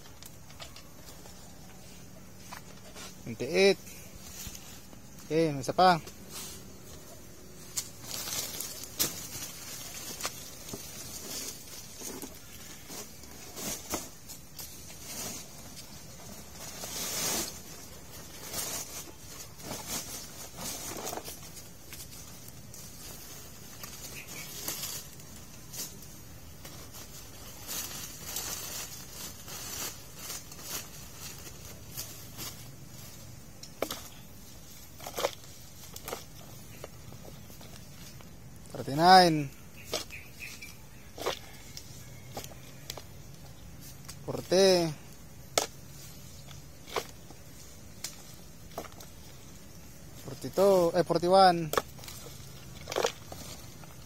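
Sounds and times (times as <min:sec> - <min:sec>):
plastic sack rustling: 0:00.6 - 0:45.1.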